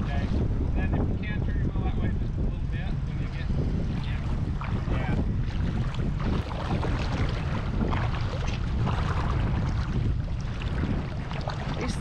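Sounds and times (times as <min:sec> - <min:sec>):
wind buffeting microphone: 0:00.0 - 0:12.0
water sloshing: 0:03.2 - 0:12.0.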